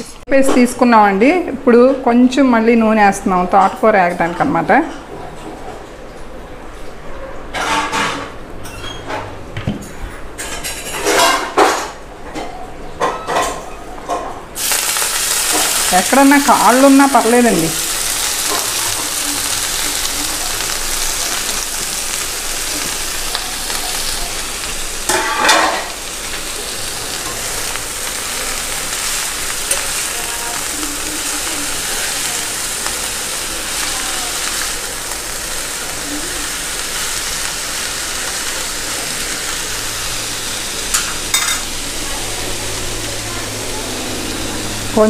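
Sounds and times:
leaves sizzling in oil: 14.6 - 45.0.

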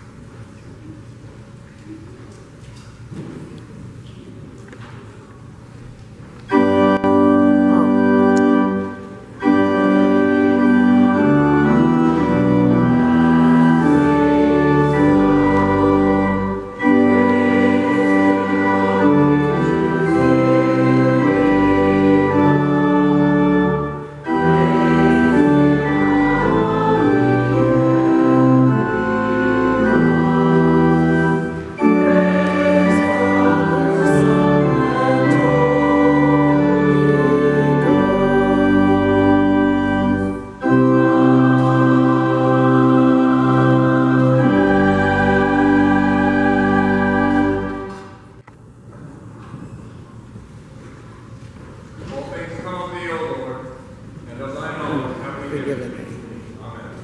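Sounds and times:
organ playing sustained chords: 5.7 - 48.8.

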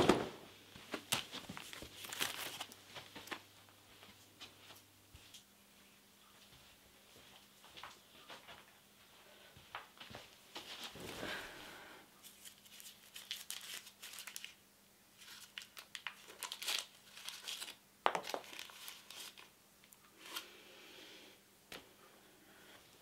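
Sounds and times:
wrapper crinkling: 0.9 - 3.4, 12.2 - 14.6, 15.2 - 19.5.

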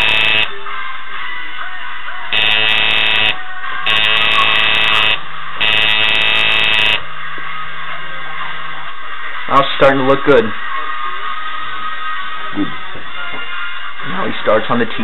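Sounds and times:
tattoo machine buzzing: 0.0 - 0.5, 2.4 - 7.0.

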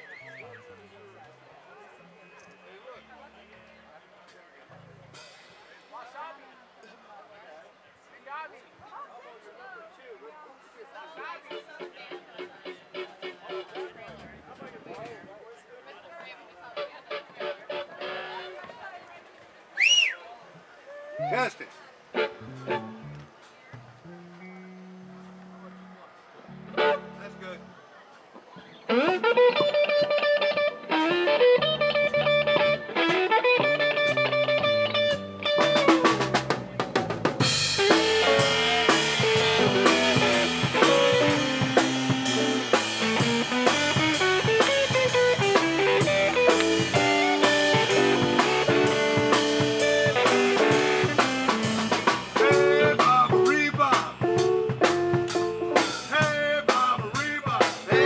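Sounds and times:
drum kit beat: 5.1 - 5.7, 21.7 - 24.5, 28.9 - 58.0
blues-rock band playing: 22.1 - 25.8, 26.5 - 27.5, 28.8 - 58.0
lead electric guitar: 22.2 - 23.3, 24.0 - 27.7, 28.7 - 58.0.

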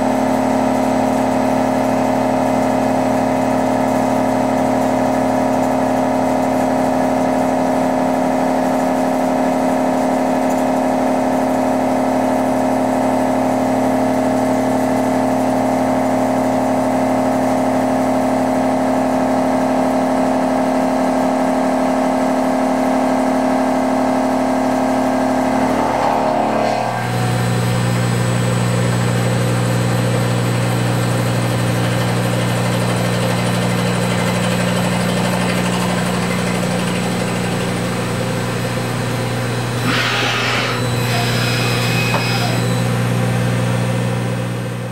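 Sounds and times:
mill machining steel: 24.0 - 44.8.

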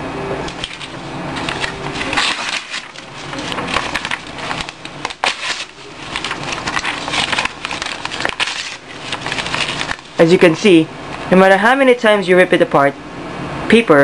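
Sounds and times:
paper tearing: 0.5 - 10.8.

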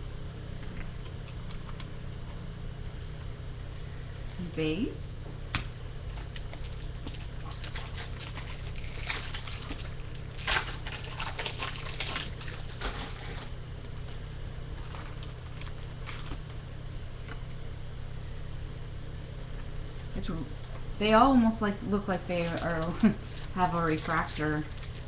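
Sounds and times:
steady low hum: 0.0 - 25.0
cards rustling: 6.2 - 16.4
wrapper crinkling and tearing: 6.2 - 16.5, 22.1 - 25.0.

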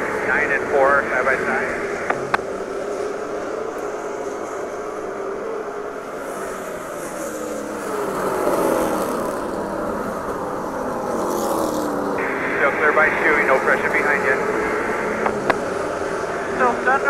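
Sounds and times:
race car engine: 0.0 - 17.0.

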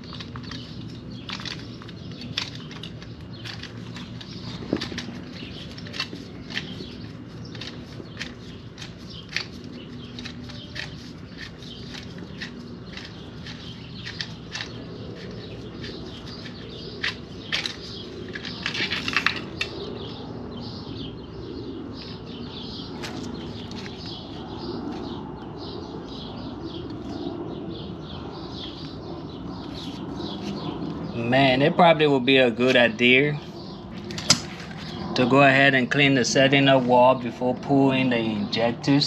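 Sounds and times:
metal parts clattering: 0.0 - 19.7
birds chirping: 0.0 - 39.0.

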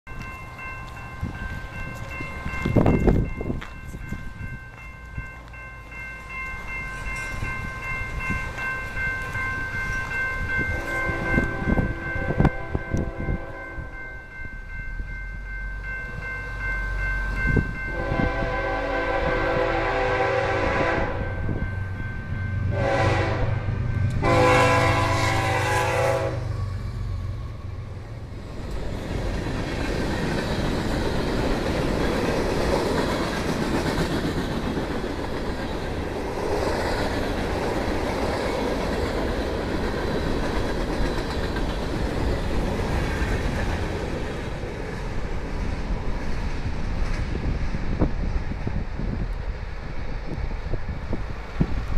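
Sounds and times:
locomotive horn blasts: 10.8 - 14.0, 17.9 - 21.6, 22.7 - 26.6
train wheels clattering on rails: 28.3 - 51.9.

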